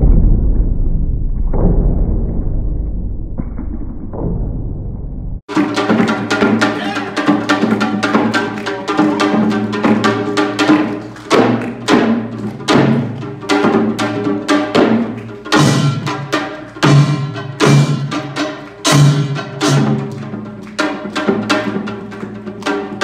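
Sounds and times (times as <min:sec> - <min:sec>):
fast drum rhythm: 0:05.5 - 0:23.0.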